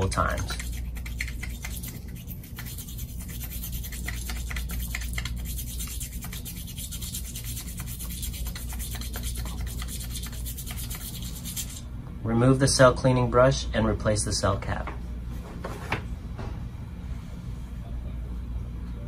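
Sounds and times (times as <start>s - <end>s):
brush scrubbing inside glass tube: 0.0s - 11.8s
low steady hum: 0.0s - 19.0s.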